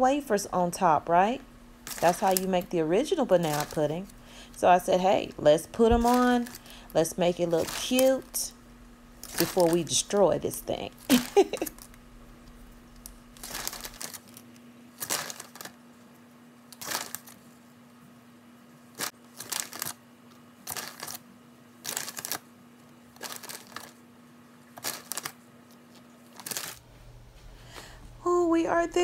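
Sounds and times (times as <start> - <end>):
faint steady hum: 0.0 - 29.0
wrapper crinkles and rustles: 1.8 - 2.7, 3.3 - 4.2, 6.0 - 6.8, 7.4 - 8.4, 9.2 - 10.0, 11.0 - 12.0, 13.0 - 15.8, 16.7 - 17.6, 19.0 - 20.0, 20.6 - 21.2, 21.8 - 22.5, 23.1 - 24.0, 24.8 - 26.8.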